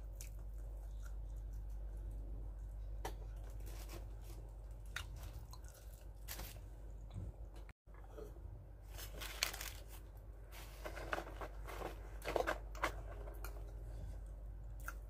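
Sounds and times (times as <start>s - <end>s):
paper bag rustling: 8.9s - 13.0s
plastic sachet tearing: 9.0s - 10.0s.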